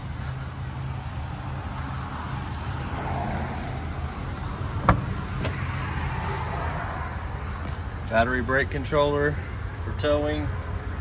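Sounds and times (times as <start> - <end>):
engine idling: 0.0 - 11.0
cab door clicks: 4.8 - 5.6.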